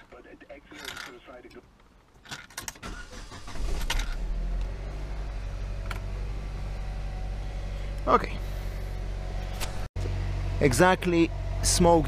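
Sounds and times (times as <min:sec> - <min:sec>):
car engine starting and idling: 0:02.6 - 0:12.0.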